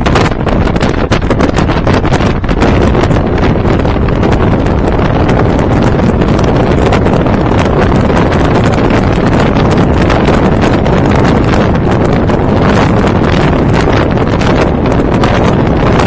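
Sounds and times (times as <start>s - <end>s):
motorcycle engine running: 0.0s - 16.0s
wind buffeting microphone: 0.0s - 16.0s.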